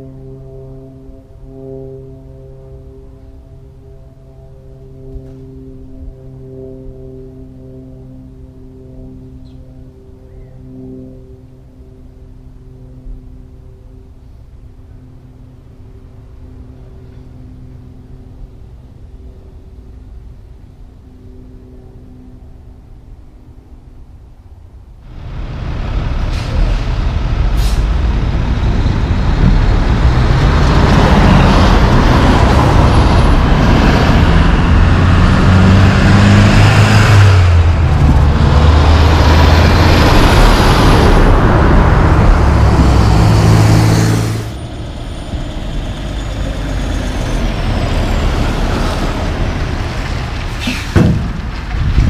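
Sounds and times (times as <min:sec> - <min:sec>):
tyre and road noise: 0:14.0 - 0:52.0
truck passing by: 0:25.0 - 0:52.0
truck diesel engines shifting gears: 0:25.1 - 0:52.0.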